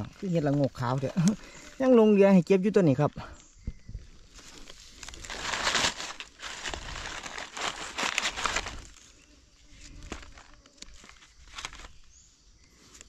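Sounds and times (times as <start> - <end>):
dry leaves rustling and crunching: 4.2 - 9.2, 9.8 - 12.1.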